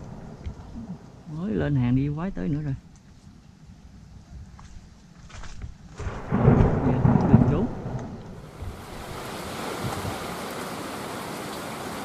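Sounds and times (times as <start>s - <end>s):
thunder rumble: 0.0s - 2.3s, 5.8s - 10.5s
strong wind through tall grass: 5.2s - 12.0s
wind buffeting microphone: 5.3s - 10.4s
heavy rain: 6.0s - 12.0s.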